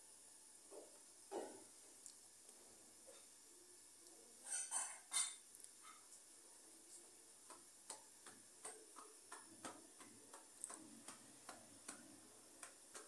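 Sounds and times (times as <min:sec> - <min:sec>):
soft slaps of dough patted: 0:07.4 - 0:13.0.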